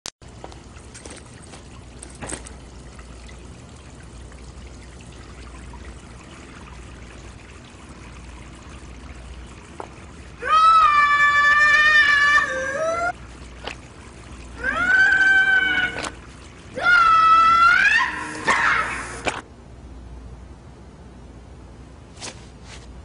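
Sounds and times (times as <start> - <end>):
water trickling from a tap: 0.2 - 19.4.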